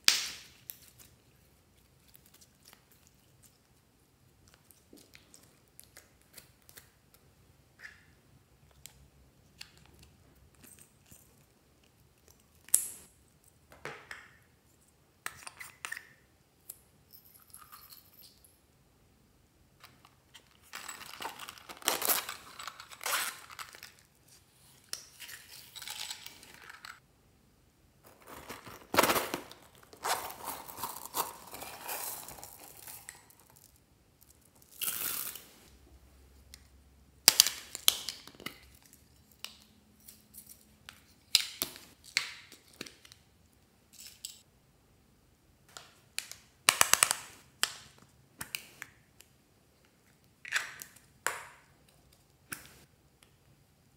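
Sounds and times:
plastic containers rustling and clicking: 28.0 - 31.6.

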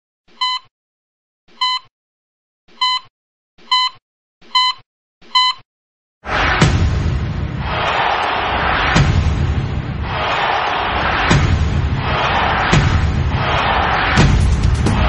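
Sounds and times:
short high heart monitor beeps: 0.4 - 0.7, 1.6 - 1.9, 2.8 - 3.1, 3.7 - 5.6
loud burst of noise: 6.2 - 15.0.

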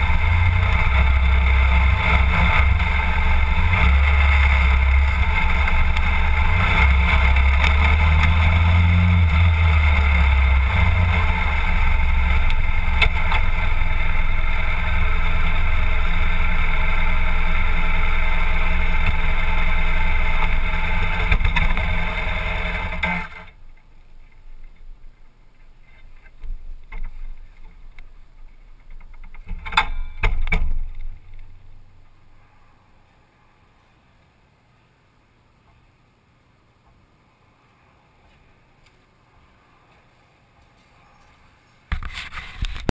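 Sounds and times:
motorcycle engine idling: 0.0 - 24.4.

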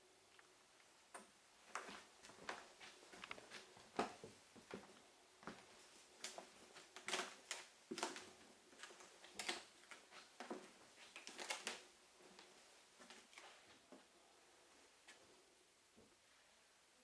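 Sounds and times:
footsteps on wooden floor: 1.7 - 5.7.

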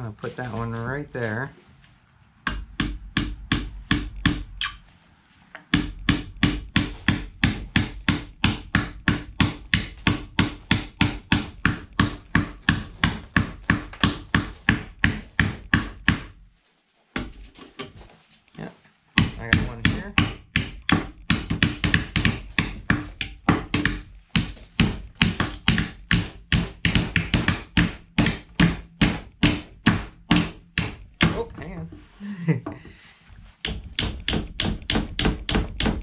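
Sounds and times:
hammer driving nails into wood: 2.5 - 4.5, 5.6 - 16.4, 19.2 - 31.6, 33.6 - 36.0.

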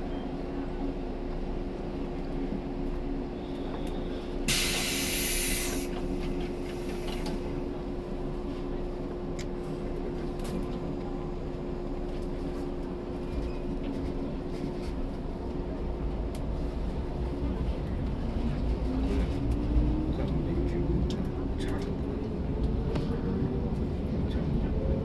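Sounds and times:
train cabin hum: 0.0 - 25.0
loud burst of air hissing: 4.5 - 5.9.

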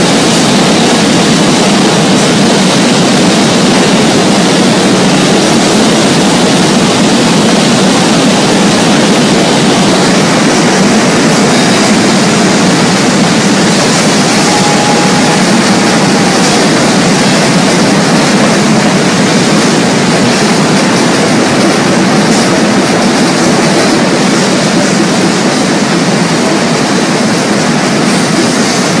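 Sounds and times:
many drum kits playing: 8.4 - 25.4.

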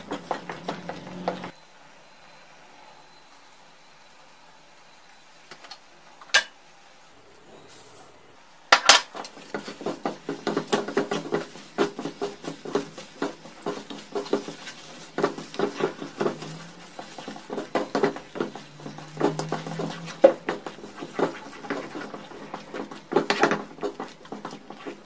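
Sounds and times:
wooden spatula scraping a pan: 0.0 - 1.5, 9.1 - 25.0
spatula knocking against pan: 9.4 - 24.9.

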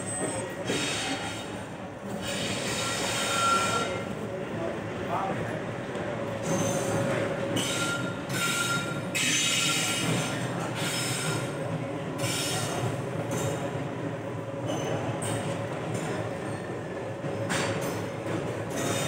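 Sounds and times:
train wheels squealing: 0.0 - 4.1, 6.4 - 11.6, 12.2 - 13.6, 14.7 - 15.6, 16.4 - 16.8, 18.7 - 19.0
train rumbling on rails: 0.0 - 19.0.

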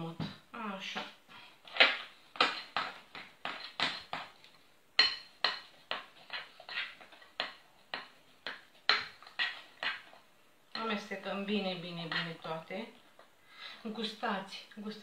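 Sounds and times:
utensil beating batter in glass bowl: 1.0 - 12.8.

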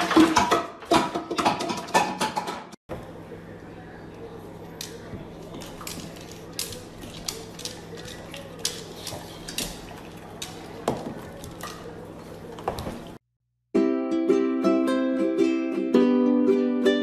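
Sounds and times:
dog claws clicking on wooden floor: 4.8 - 12.9.

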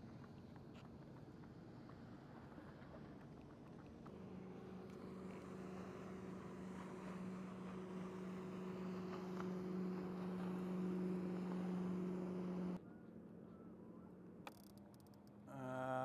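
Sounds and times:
boat motor humming: 4.0 - 12.8.

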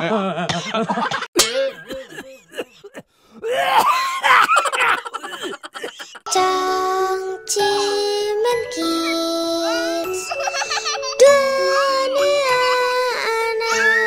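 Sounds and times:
children's jingle: 6.3 - 14.0.

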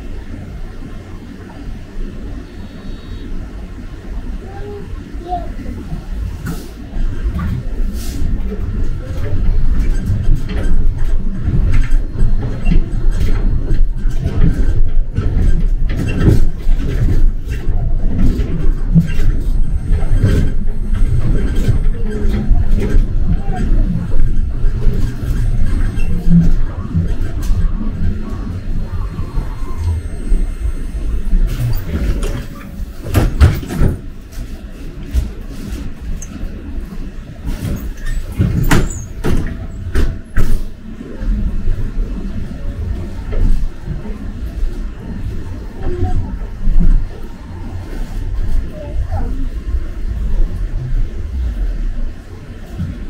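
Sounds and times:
bus body rattling: 0.0 - 53.0
bus engine and road rumble: 0.0 - 53.0
knocks and rattles: 31.5 - 34.5, 37.4 - 40.6.

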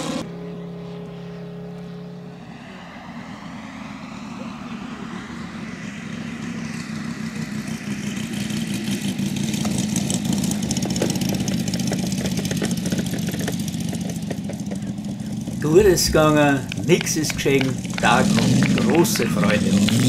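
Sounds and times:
model plane radial engine: 0.0 - 20.0
wheels knocking on grass: 10.6 - 20.0.

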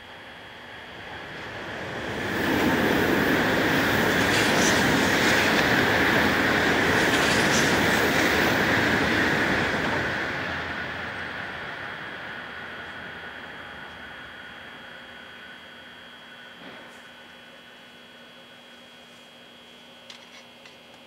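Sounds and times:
train wheels on rails: 1.0 - 14.3, 16.6 - 17.0.

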